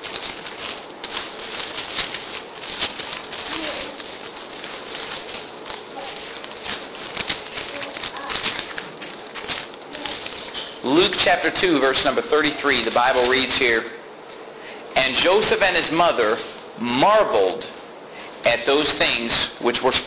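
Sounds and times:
paper pages rustling: 0.0 - 13.8.

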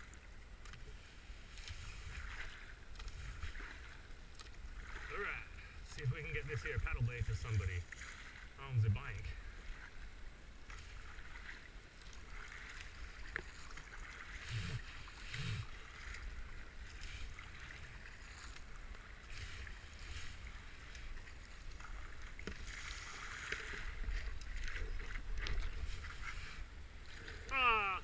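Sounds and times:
paddle splashing through water: 0.0 - 28.0.

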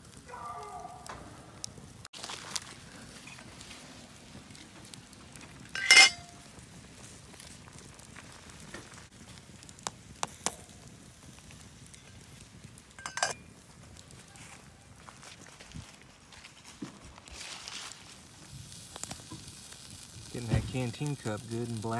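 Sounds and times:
pot sizzling and crackling: 0.0 - 0.4, 1.0 - 21.9
metal cup lid clattering: 5.8 - 6.3, 13.0 - 13.4.

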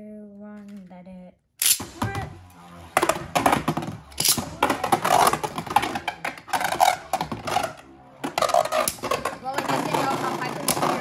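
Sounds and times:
spinning tops clashing: 1.6 - 2.0, 2.8 - 9.4
spinning tops scraping: 1.6 - 11.0.

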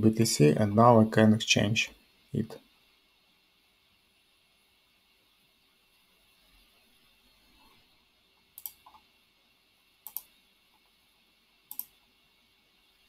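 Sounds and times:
computer mouse button clicking: 8.6 - 9.0, 10.0 - 10.3, 11.7 - 11.9.

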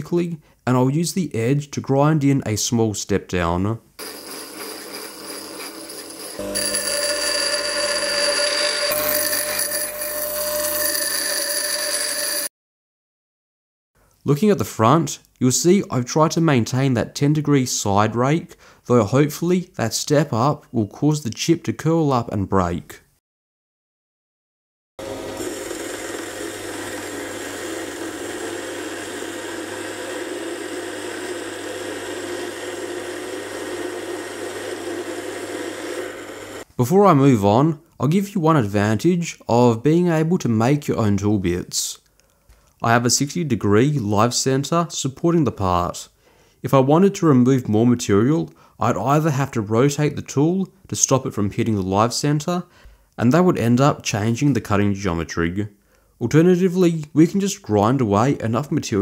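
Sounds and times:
bench grinder whine: 4.0 - 12.5, 25.0 - 36.7
grinding hiss: 4.0 - 12.5
lathe cutting metal: 4.0 - 12.5, 25.0 - 36.6.

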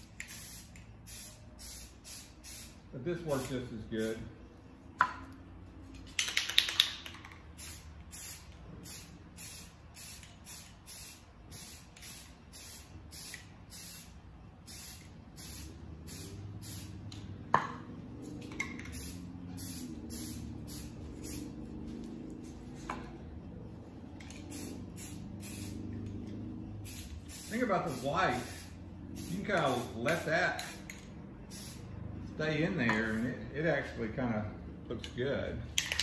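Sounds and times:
aerosol spray paint hissing: 0.0 - 3.5, 7.6 - 17.2, 18.4 - 22.9, 24.3 - 26.0, 26.8 - 31.9
sharp clicks: 6.1 - 7.4.

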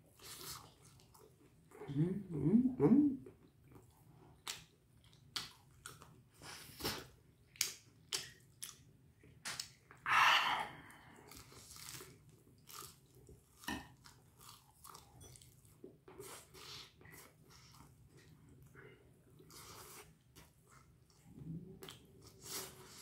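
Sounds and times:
crunchy chewing: 11.3 - 18.3.

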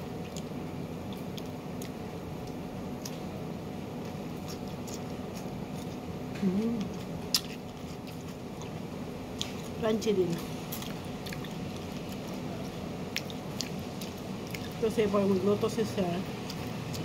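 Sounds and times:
person chewing crisp pepper: 0.0 - 9.8, 10.4 - 14.8, 16.3 - 17.0
steady low hum: 0.0 - 17.0
person humming mm: 6.4 - 6.9.

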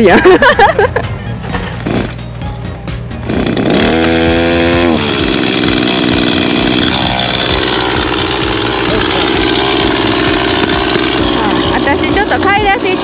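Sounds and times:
small-engine power tool revving: 1.8 - 2.2, 3.2 - 13.0.

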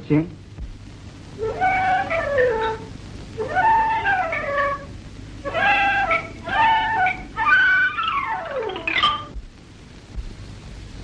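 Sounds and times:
swooping pitched tone: 1.4 - 9.4.

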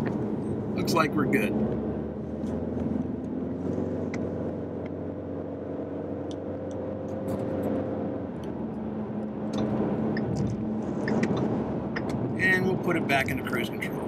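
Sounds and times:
car engine humming: 0.0 - 14.0
tyre and road noise: 0.0 - 14.0.

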